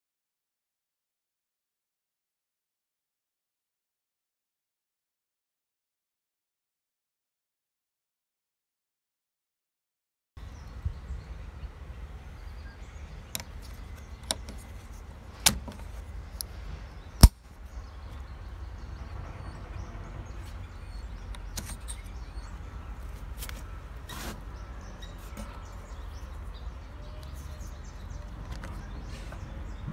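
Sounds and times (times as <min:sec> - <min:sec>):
low outdoor rumble: 0:10.4 - 0:29.9.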